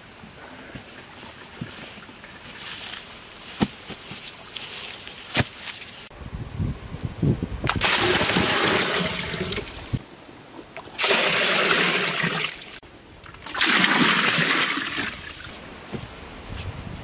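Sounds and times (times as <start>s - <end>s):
water pouring and splashing: 7.7s - 10.0s, 10.8s - 15.5s.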